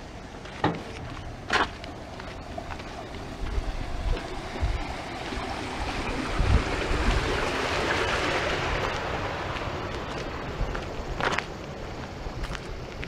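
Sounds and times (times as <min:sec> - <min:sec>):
vehicle passing on road: 0:00.0 - 0:13.0
wind buffeting microphone: 0:00.0 - 0:13.0.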